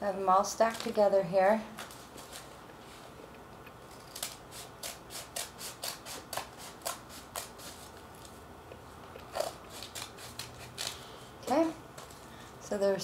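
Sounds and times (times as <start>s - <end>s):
scissors snipping paper: 3.9s - 8.3s, 9.3s - 12.2s.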